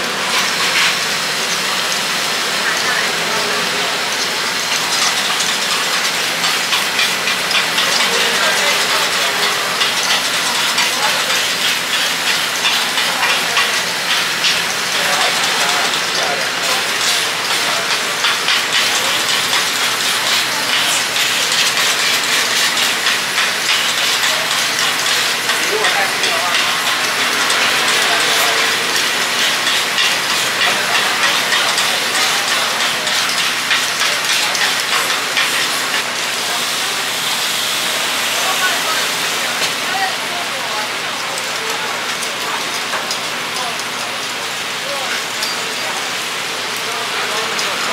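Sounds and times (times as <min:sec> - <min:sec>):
batter sizzling on griddle: 0:00.0 - 0:47.9.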